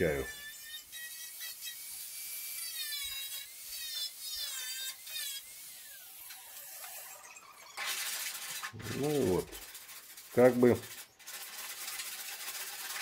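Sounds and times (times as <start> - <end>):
angle grinder whining: 0.0 - 9.8.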